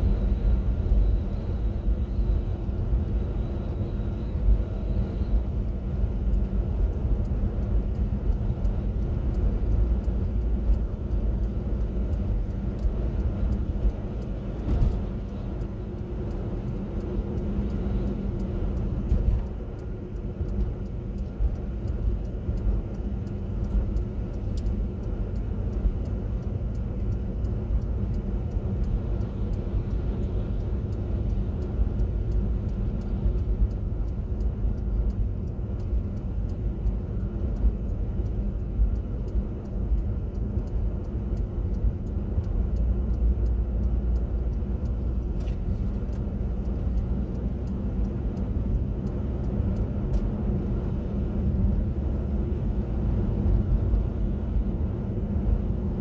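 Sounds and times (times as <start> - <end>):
car engine and road noise: 0.0 - 56.0.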